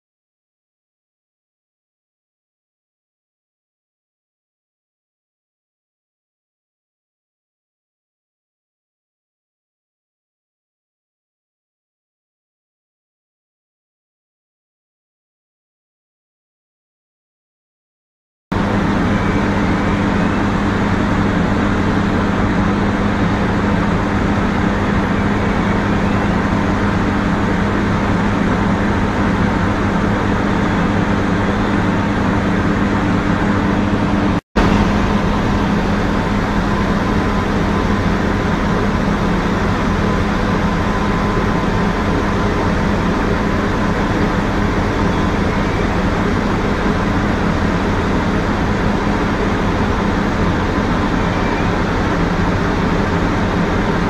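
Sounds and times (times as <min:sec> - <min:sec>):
industrial machinery drone: 0:18.6 - 0:54.0.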